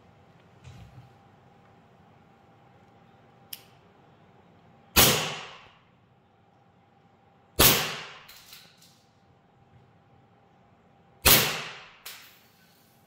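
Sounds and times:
airsoft pistol shots: 0:05.0 - 0:05.8, 0:07.6 - 0:08.3, 0:11.2 - 0:12.3.

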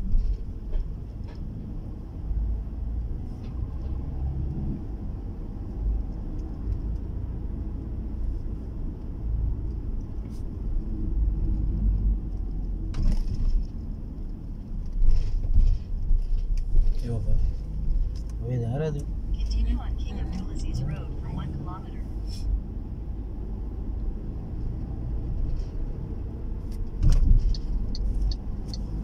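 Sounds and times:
car cabin road rumble: 0:00.0 - 0:29.0.

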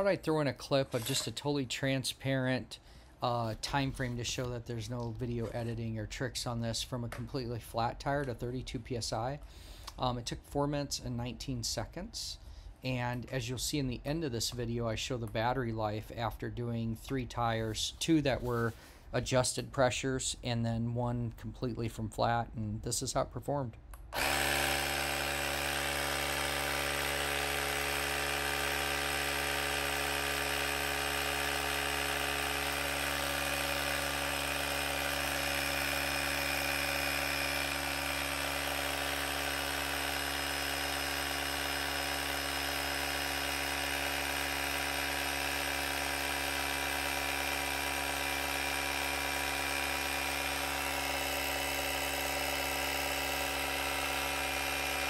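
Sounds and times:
tire inflator compressor running: 0:23.9 - 0:55.0.

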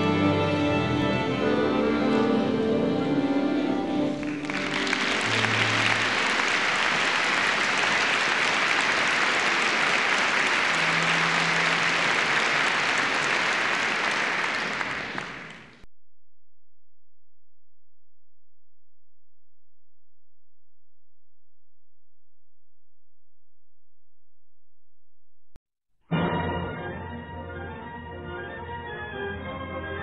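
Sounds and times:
orchestral music: 0:00.0 - 0:15.5, 0:26.1 - 0:30.0
audience applauding: 0:04.1 - 0:15.8.

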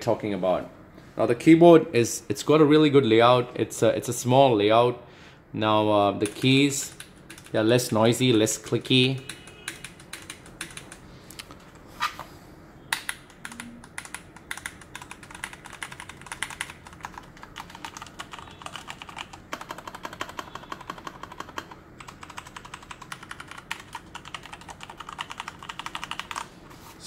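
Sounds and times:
mechanical keyboard typing: 0:06.2 - 0:08.5, 0:09.2 - 0:11.0, 0:12.9 - 0:26.5.

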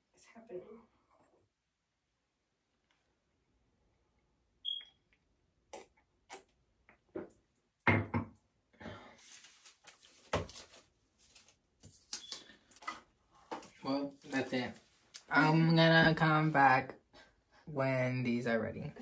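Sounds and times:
short high beep: 0:04.6 - 0:05.0
small objects rustling and clattering: 0:09.2 - 0:12.1.

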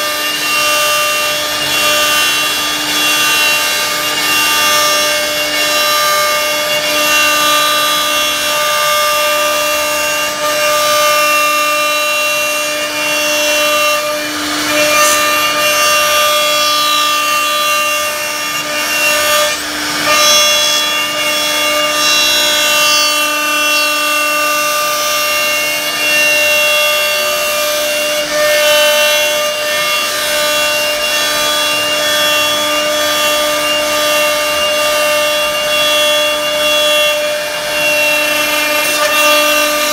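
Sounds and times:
router spindle whining: 0:00.0 - 0:39.9.

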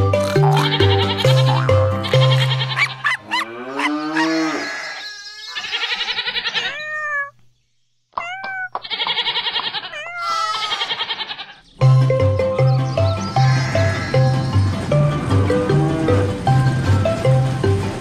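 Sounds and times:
background music: 0:00.0 - 0:03.6, 0:11.8 - 0:18.0
cartoon cow mooing: 0:00.3 - 0:05.0
kitten meowing: 0:06.6 - 0:07.4, 0:08.2 - 0:11.5.

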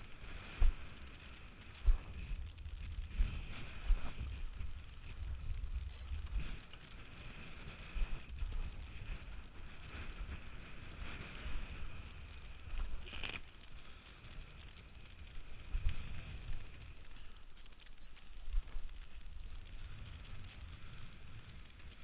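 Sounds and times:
wind buffeting microphone: 0:00.0 - 0:13.3.

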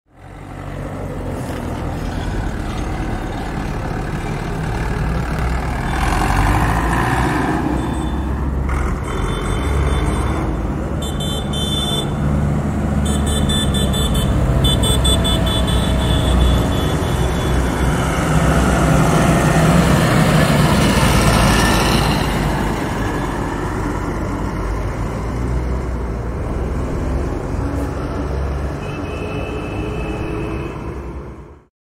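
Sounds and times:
traffic engines rumbling: 0:00.1 - 0:31.7
car horns honking: 0:09.0 - 0:12.2, 0:13.0 - 0:17.8, 0:28.8 - 0:31.0.

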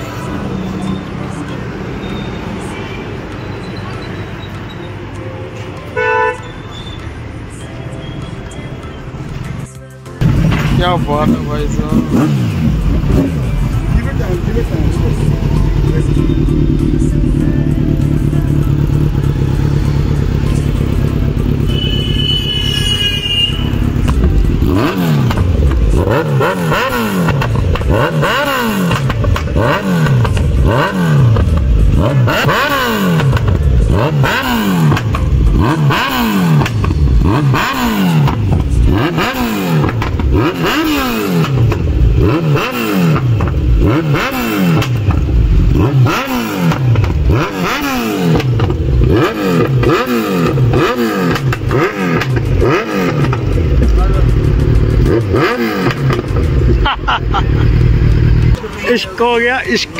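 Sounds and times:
motorcycle engine idling: 0:10.2 - 0:35.8, 0:48.2 - 0:59.1
motorcycle engine revving: 0:10.2 - 0:59.9.

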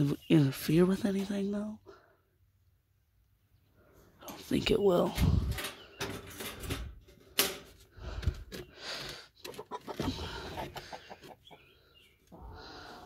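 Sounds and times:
chickens clucking: 0:09.4 - 0:13.0.

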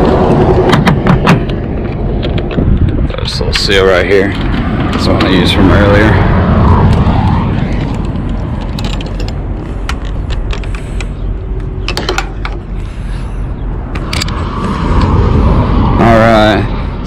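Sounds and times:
steady low rumble: 0:00.0 - 0:17.0
sharp clicks and mechanical rattles: 0:00.6 - 0:05.6, 0:07.8 - 0:12.7, 0:13.9 - 0:15.2.

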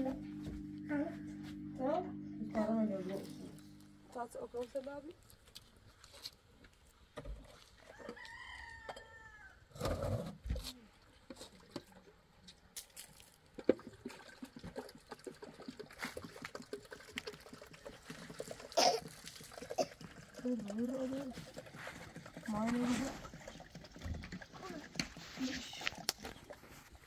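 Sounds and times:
rooster crowing: 0:07.9 - 0:09.6.

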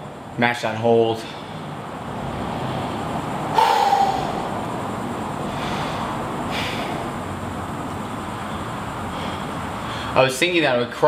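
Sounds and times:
air-handling noise: 0:02.8 - 0:10.5
person breathing heavily: 0:03.5 - 0:07.4, 0:08.3 - 0:10.2.

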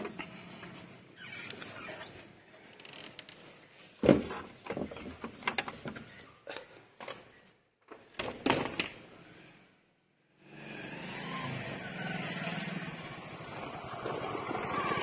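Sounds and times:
barrel bolt sliding and rattling: 0:00.0 - 0:02.2, 0:03.2 - 0:06.3.

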